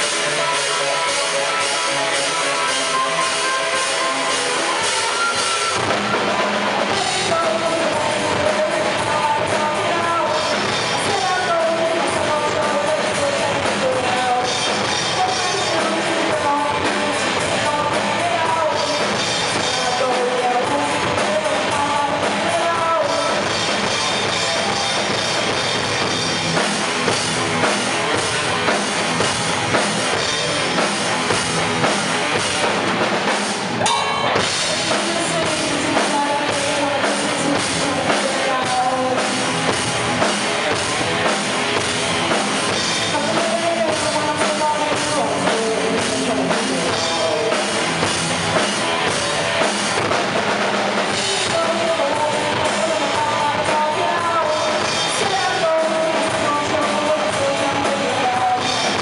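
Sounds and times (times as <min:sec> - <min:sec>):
woman singing: 0:00.0 - 0:24.0, 0:34.1 - 0:39.8, 0:42.6 - 0:47.8, 0:51.1 - 0:59.0
drums hitting: 0:00.0 - 0:59.0
live rock band playing: 0:00.0 - 0:59.0.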